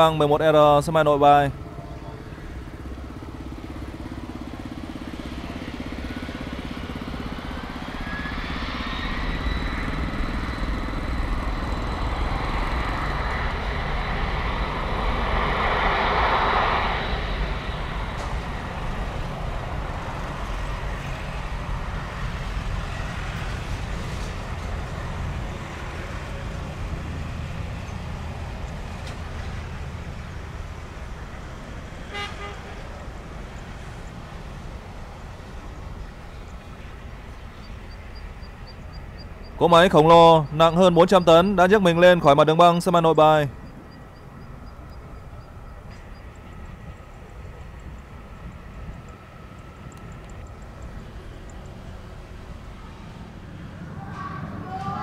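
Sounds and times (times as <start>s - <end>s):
jet engines spooling up: 0.0s - 32.1s.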